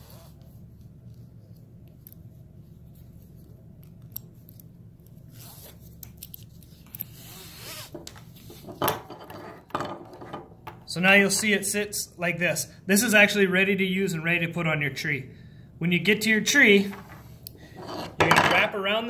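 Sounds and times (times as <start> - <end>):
strap scraping through buckle: 0.0 - 0.5, 5.2 - 9.6, 17.1 - 18.2.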